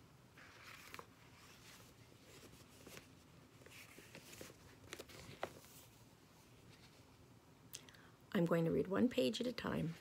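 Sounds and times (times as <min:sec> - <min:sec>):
paper pages rustling: 0:00.4 - 0:07.2.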